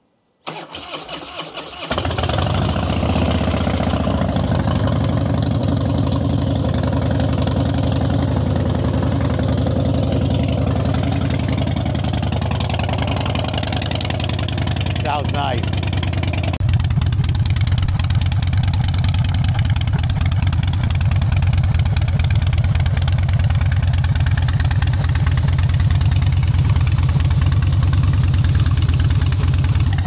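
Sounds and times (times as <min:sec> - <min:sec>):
electric starter cranking: 0:00.4 - 0:02.6
motorcycle engine idling: 0:02.0 - 0:30.0.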